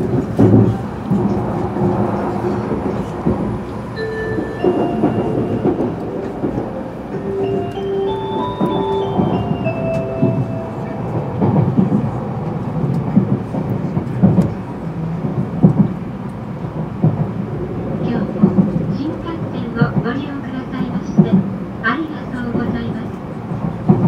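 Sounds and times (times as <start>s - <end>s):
train cabin low rumble: 0.0s - 24.0s
short chime melody: 4.0s - 11.2s.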